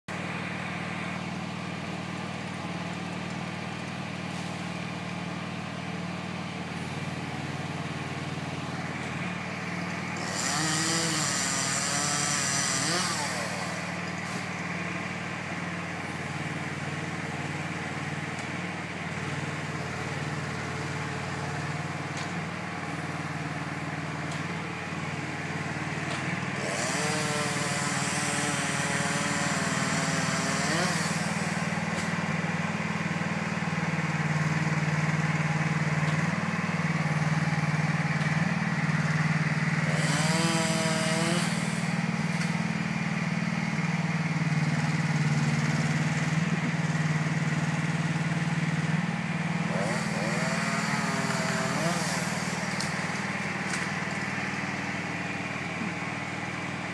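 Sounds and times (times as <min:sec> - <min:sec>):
truck engine running: 0:00.1 - 0:56.9
chainsaw revving and cutting: 0:10.0 - 0:14.5, 0:25.4 - 0:32.2, 0:33.9 - 0:42.7, 0:43.8 - 0:55.8.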